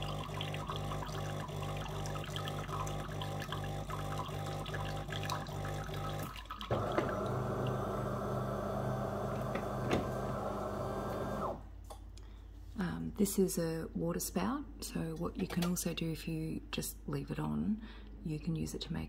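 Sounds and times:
water running into a glass: 0:00.0 - 0:11.5
coffee machine pump humming: 0:00.0 - 0:11.7.

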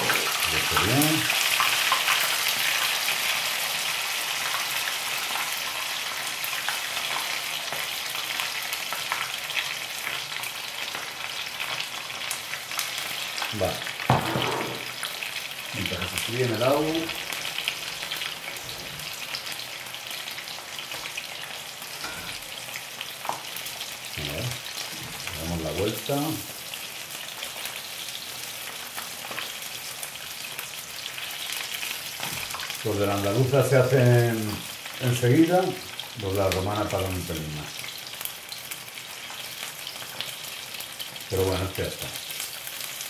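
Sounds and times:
food sizzling in oil: 0:00.0 - 0:43.0.

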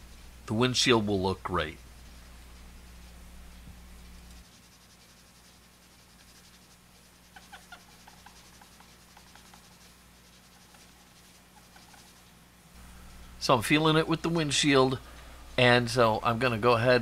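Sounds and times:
low steady hum: 0:00.0 - 0:17.0
cotton swab rubbing plastic: 0:01.7 - 0:12.4.

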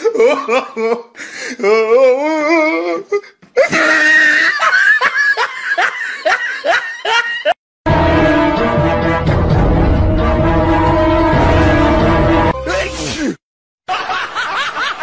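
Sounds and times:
person laughing: 0:00.0 - 0:01.8, 0:03.2 - 0:07.6.

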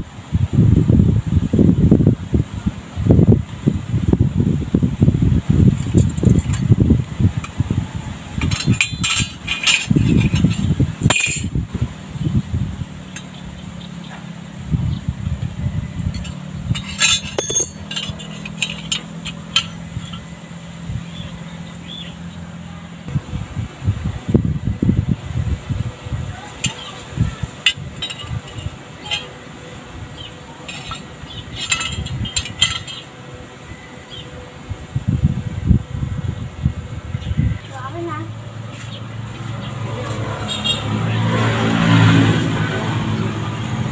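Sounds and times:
metal washers clinking on concrete: 0:05.8 - 0:06.7, 0:08.4 - 0:11.6, 0:16.1 - 0:20.5, 0:26.6 - 0:29.4, 0:30.2 - 0:33.1.

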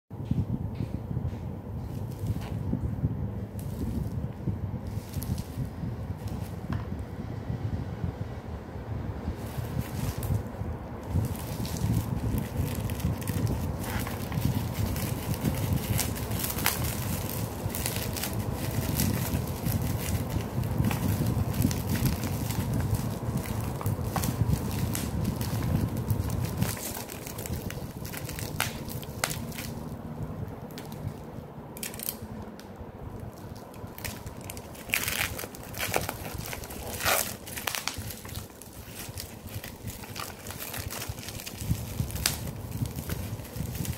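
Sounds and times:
microphone handling rumble: 0:00.1 - 0:43.9
cellophane crackling: 0:03.5 - 0:06.6, 0:09.3 - 0:43.9
plastic shrink-wrap crinkling: 0:04.8 - 0:06.6, 0:09.4 - 0:32.2, 0:33.2 - 0:43.9
cardboard box rustling: 0:09.4 - 0:29.8, 0:33.8 - 0:43.9.

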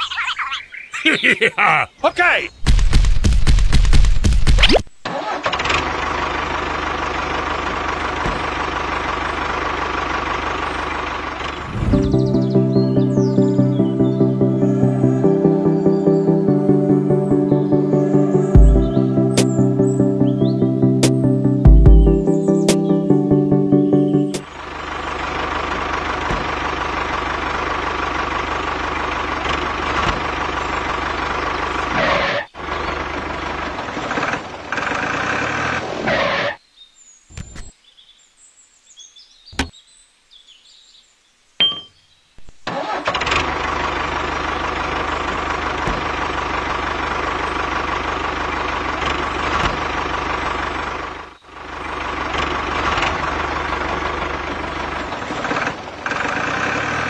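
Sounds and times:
tractor engine running: 0:02.6 - 0:36.4, 0:42.6 - 0:57.0.

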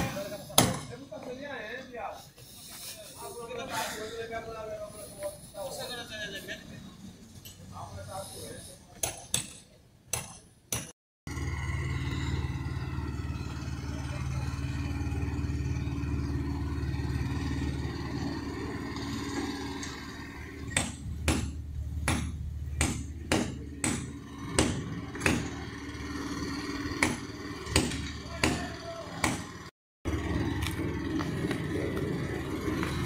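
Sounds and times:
low motor drone: 0:11.3 - 0:33.0
sharp hammer blows: 0:20.7 - 0:25.7.

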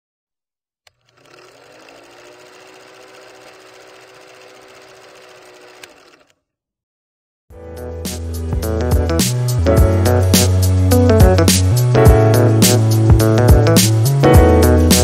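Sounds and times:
film projector clattering: 0:00.9 - 0:06.4.

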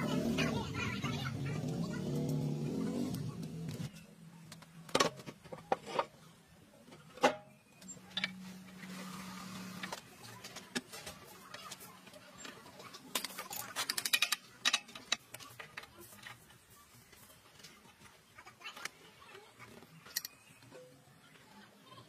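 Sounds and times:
metal clicks and knocks: 0:13.1 - 0:16.4.

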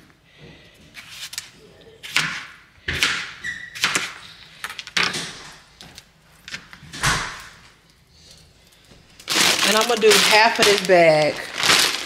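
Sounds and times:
knife chopping on cutting board: 0:02.1 - 0:04.1.

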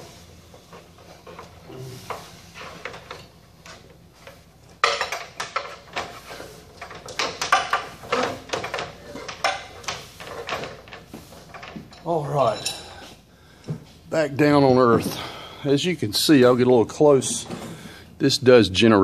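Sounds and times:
ladder knocking and clattering: 0:02.6 - 0:12.6.

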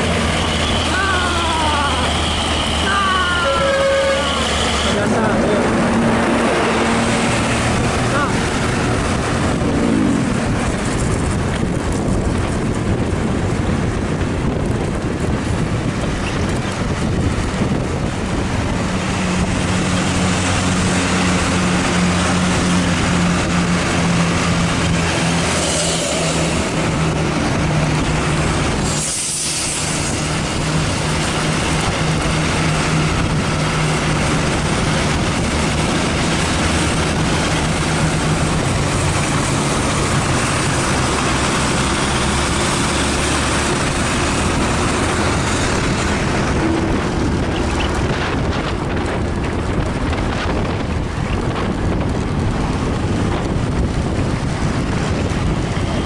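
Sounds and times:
bus engine droning: 0:00.0 - 0:56.0
road and wind noise: 0:00.0 - 0:56.0
short air hisses: 0:28.8 - 0:30.0.

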